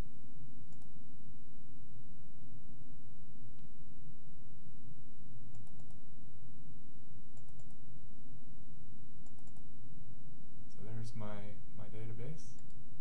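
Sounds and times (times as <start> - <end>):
steady low hum: 0.0 - 13.0
computer mouse double-clicking: 9.2 - 9.6.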